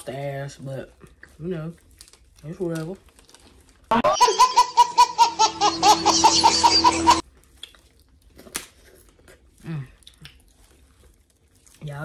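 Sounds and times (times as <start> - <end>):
person laughing: 3.9 - 7.2.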